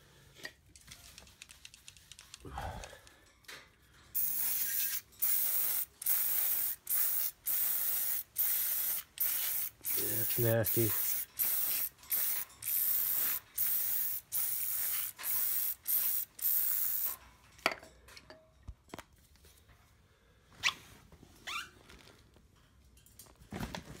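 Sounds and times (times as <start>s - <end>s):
spray hissing bursts: 4.2s - 17.2s.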